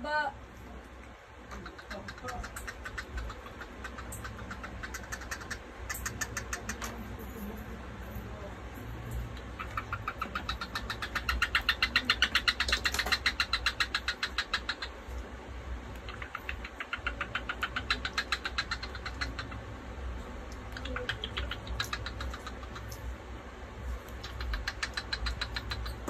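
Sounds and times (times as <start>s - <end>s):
cockatiel making rapid clicks: 1.5s - 7.2s, 9.2s - 15.3s, 15.9s - 19.8s, 20.5s - 23.1s, 24.0s - 26.0s.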